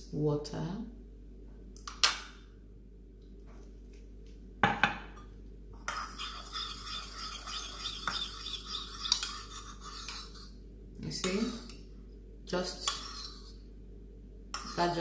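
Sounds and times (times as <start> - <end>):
spoon stirring in a bowl: 5.8 - 11.8, 12.6 - 13.6, 14.5 - 15.0.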